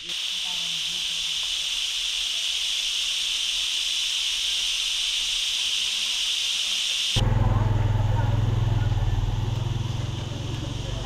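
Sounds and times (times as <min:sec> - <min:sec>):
low engine hum: 0:07.2 - 0:11.0.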